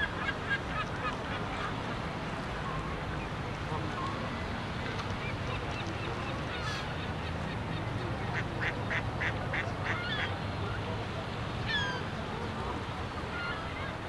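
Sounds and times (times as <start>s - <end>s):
waterfowl calls: 5.2s - 10.8s, 11.6s - 12.1s.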